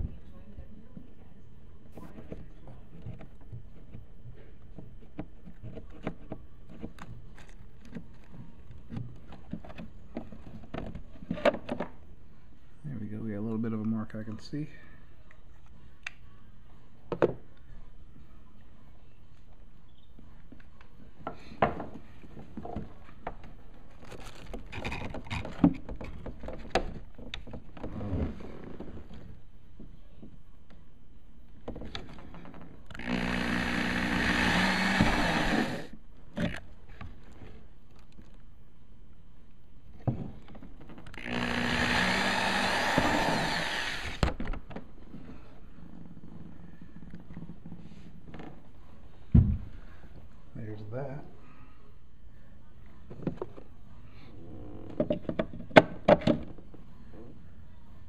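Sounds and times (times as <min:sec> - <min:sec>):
power drill running: 0:32.9 - 0:35.9, 0:41.2 - 0:44.2.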